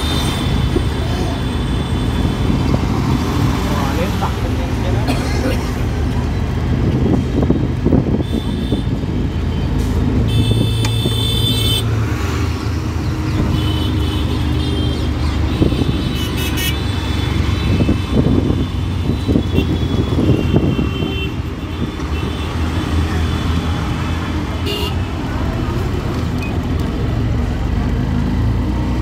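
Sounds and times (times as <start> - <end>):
vehicle horns honking: 8.2 - 9.0, 10.3 - 11.9, 13.4 - 22.7, 24.6 - 25.1.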